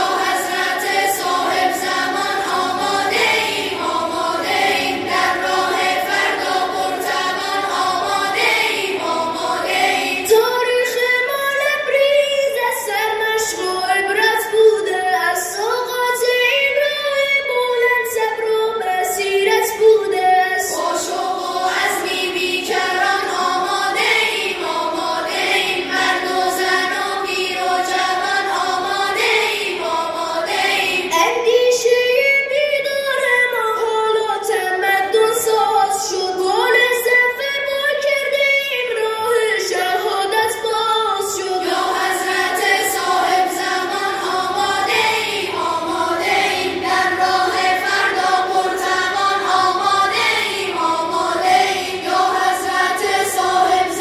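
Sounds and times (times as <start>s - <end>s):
boys' choir singing: 0.0s - 11.6s, 18.4s - 31.8s, 39.3s - 54.0s.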